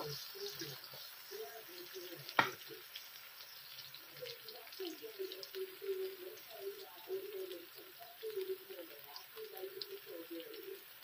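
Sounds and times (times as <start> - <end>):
onion sizzling in hot oil: 0.0 - 11.0
spatula knocking pan: 2.2 - 2.7.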